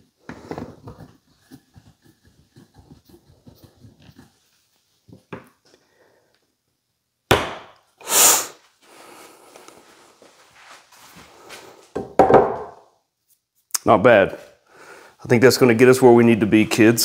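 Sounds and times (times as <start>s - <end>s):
short hiss: 8.0s - 8.6s
faint scraping and handling: 8.7s - 11.9s
wood knock: 12.0s - 12.8s.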